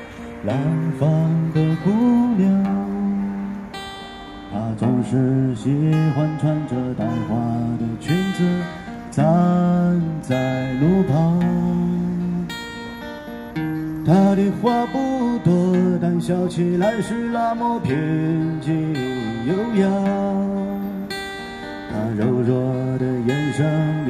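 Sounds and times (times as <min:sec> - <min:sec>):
acoustic guitar strumming: 0:00.0 - 0:24.0
person singing through speaker: 0:04.6 - 0:12.3, 0:21.9 - 0:24.0.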